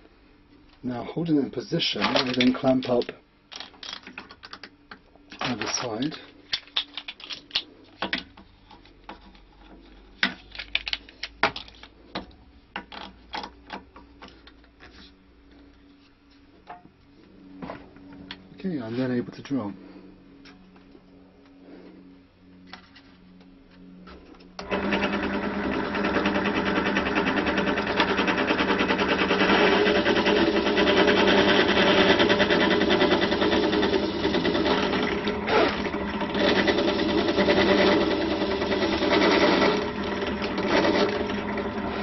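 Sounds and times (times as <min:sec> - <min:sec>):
drill press boring wood: 0:24.6 - 0:42.0.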